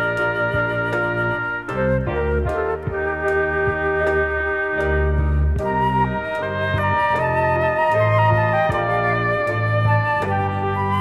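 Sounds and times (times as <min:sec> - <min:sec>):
small ensemble instrumental music: 0:00.0 - 0:11.0.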